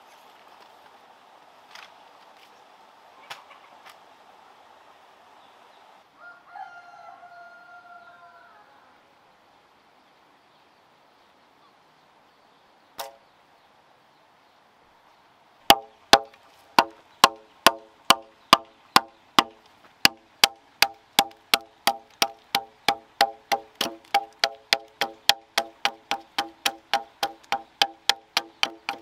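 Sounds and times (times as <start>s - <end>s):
machete chopping wooden log: 15.7s - 29.0s.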